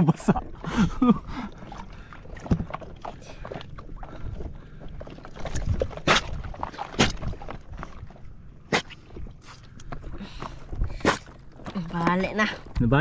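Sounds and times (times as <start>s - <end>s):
water sloshing around boat: 0.0s - 13.0s
sharp splashes or knocks: 1.7s - 4.1s, 5.2s - 8.0s.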